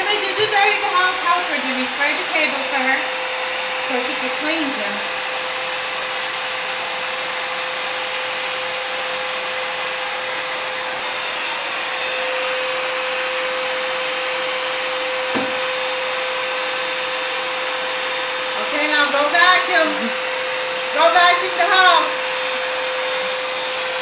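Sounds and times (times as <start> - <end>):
vacuum cleaner running: 0.0 - 24.0.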